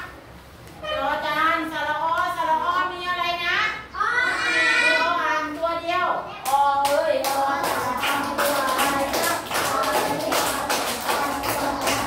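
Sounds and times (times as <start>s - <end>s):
children clapping in rhythm: 6.4s - 12.0s
children singing or chanting: 6.4s - 12.0s.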